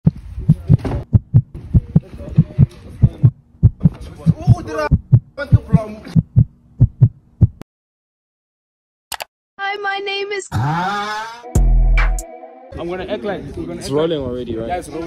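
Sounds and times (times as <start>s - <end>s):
heartbeat thumps: 0.1s - 7.6s.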